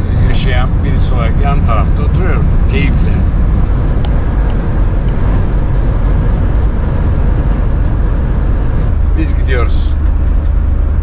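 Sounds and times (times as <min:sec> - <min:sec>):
engine and road noise rumble: 0:00.0 - 0:11.0.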